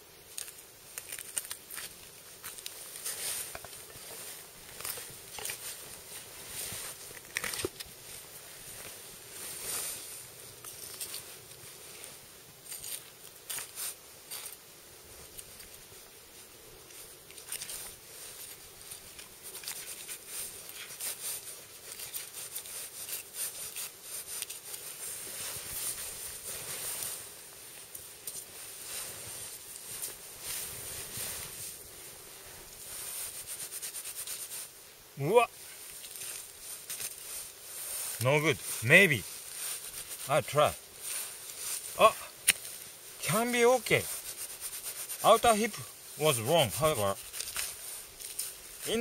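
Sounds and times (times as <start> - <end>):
knife and gloves rustling scraping: 0.3 - 49.0
knife cutting hide and meat: 21.9 - 24.8.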